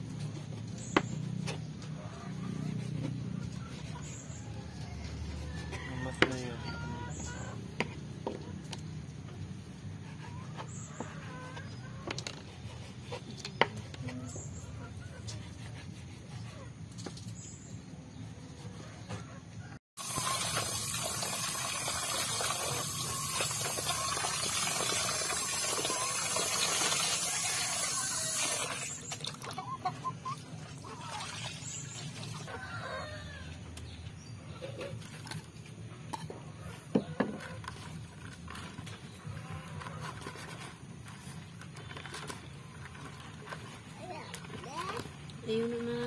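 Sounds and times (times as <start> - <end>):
hens clucking: 27.0 - 31.4
small birds chirping: 28.8 - 35.1
water splashing into plastic basin: 30.8 - 32.5.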